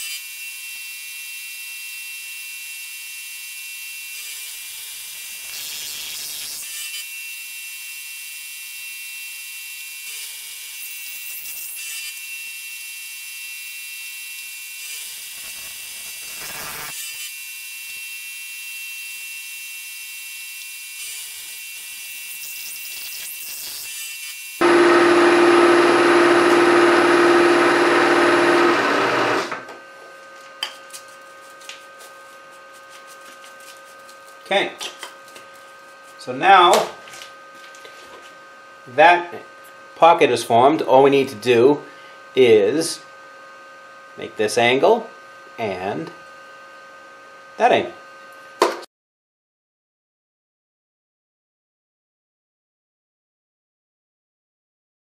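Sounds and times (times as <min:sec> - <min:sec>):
milling spindle high whine: 0:24.6 - 0:29.6
end mill scraping metal: 0:24.6 - 0:29.7
loud cut with strong hum: 0:24.6 - 0:29.7.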